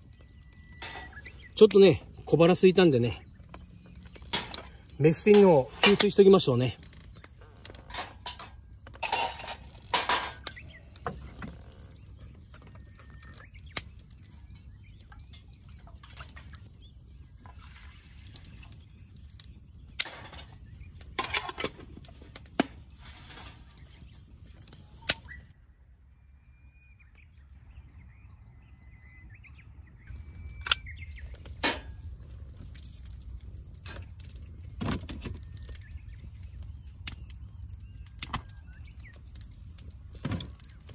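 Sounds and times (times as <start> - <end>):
metal tin clinking on mesh: 7.8 - 10.4.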